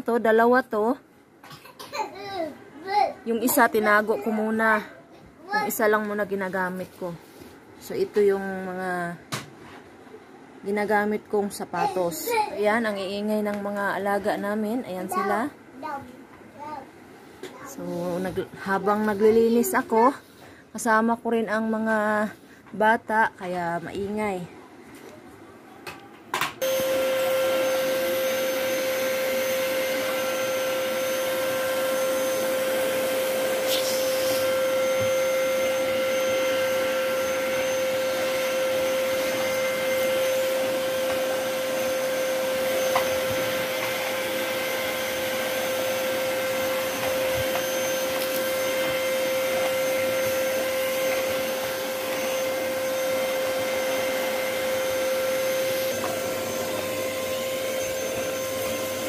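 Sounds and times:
vacuum cleaner running: 17.4s - 20.5s, 26.4s - 59.0s.

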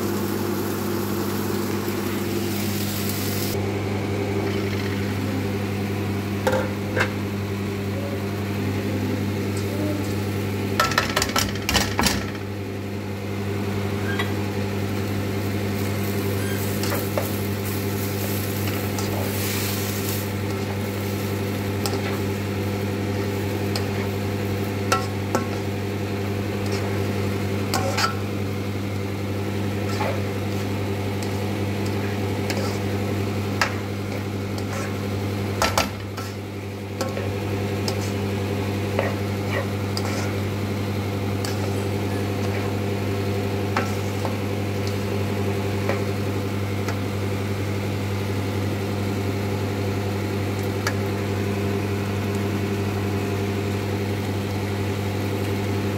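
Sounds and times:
spatula scraping a pan: 27.7s - 28.2s, 32.0s - 32.9s, 34.6s - 35.0s, 39.0s - 40.5s, 41.4s - 42.7s.

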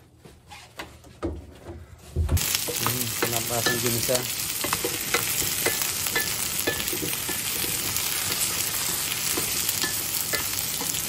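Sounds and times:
vegetables sizzling in skillet: 2.4s - 11.0s.

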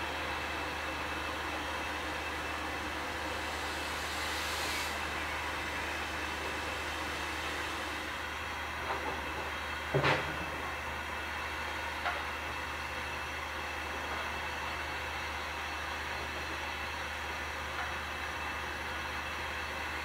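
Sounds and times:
steam locomotive hissing: 0.0s - 10.6s.

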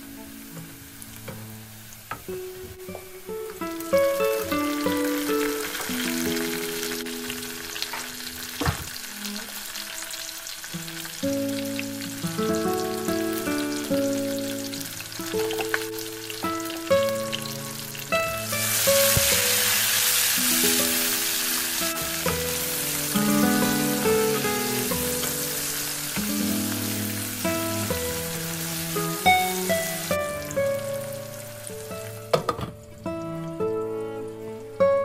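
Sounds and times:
food sizzling in frying pan: 0.0s - 33.8s
background music: 10.9s - 35.0s.

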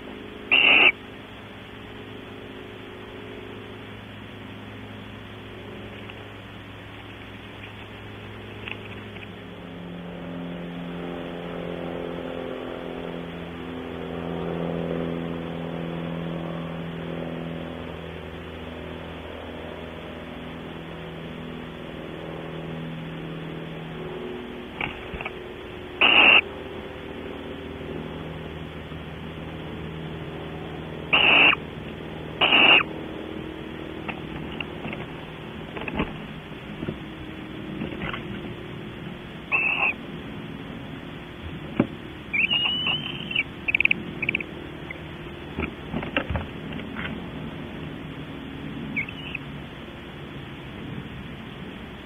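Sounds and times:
barn owl harsh calls: 0.0s - 1.1s, 24.8s - 26.5s, 31.1s - 31.8s, 32.4s - 33.0s, 39.4s - 40.1s, 42.2s - 45.1s, 48.9s - 49.5s
engine drone: 0.0s - 52.0s
steady low hum: 0.0s - 52.0s.

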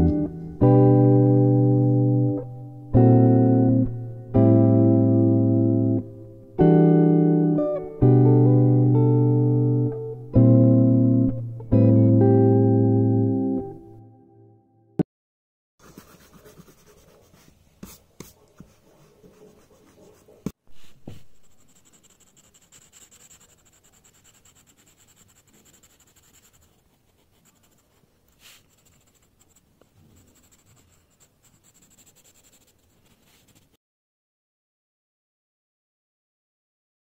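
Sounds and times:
pencil scratching on paper: 15.8s - 33.8s.

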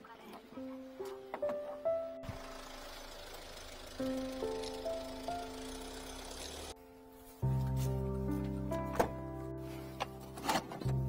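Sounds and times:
vehicle engine idling: 1.9s - 6.8s.

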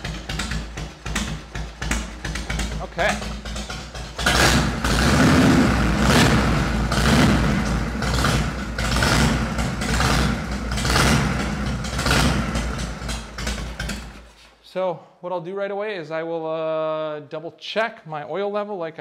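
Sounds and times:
motorcycle engine revving: 0.0s - 14.3s.

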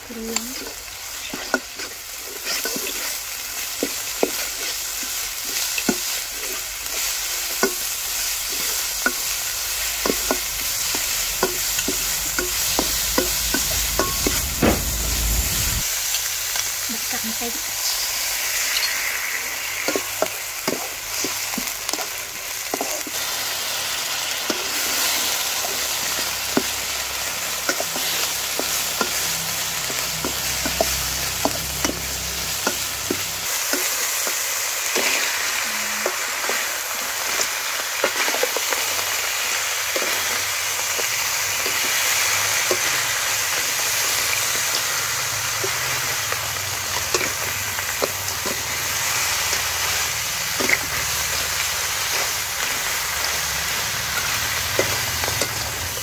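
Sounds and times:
food sizzling in a wok: 0.0s - 56.0s
metal spatula scraping a pan: 0.3s - 3.2s, 17.8s - 20.9s.

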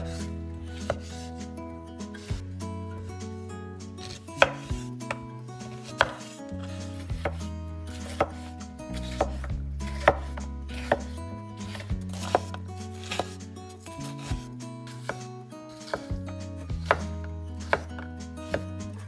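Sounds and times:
knife chopping on cutting board: 0.8s - 1.2s, 4.0s - 13.4s, 14.2s - 19.0s.

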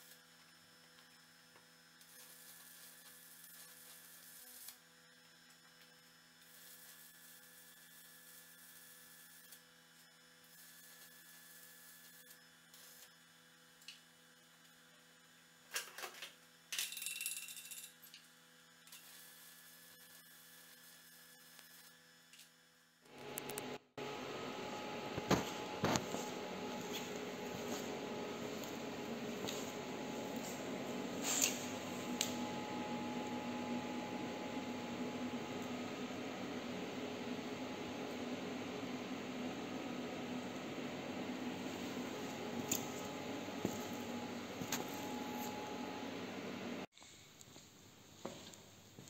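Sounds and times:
faint electrical hum: 21.6s - 49.0s.

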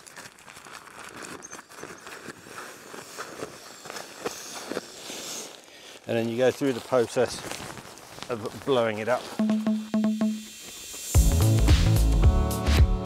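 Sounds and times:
nylon fabric rustling: 0.0s - 9.4s.

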